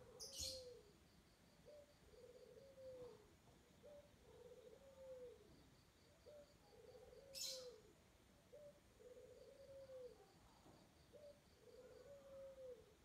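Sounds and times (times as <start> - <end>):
dove cooing: 0.0 - 1.0, 1.6 - 5.6, 6.2 - 10.4, 11.1 - 13.0.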